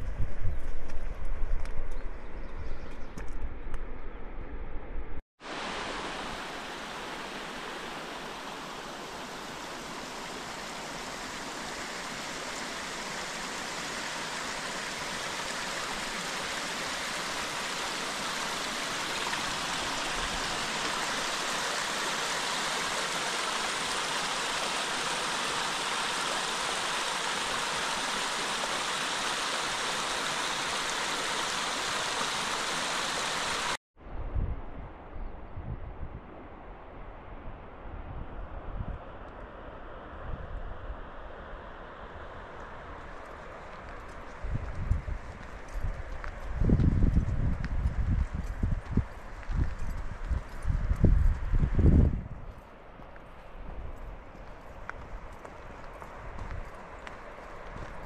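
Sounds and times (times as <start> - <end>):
stream water rushing: 5.4 - 33.8.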